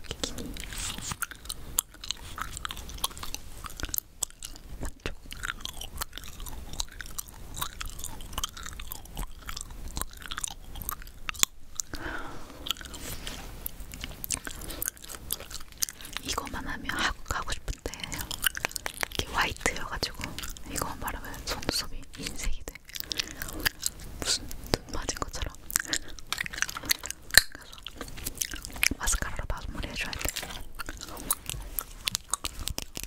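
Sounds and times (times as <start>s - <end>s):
gum chewing clicks and smacks: 0.0s - 33.0s.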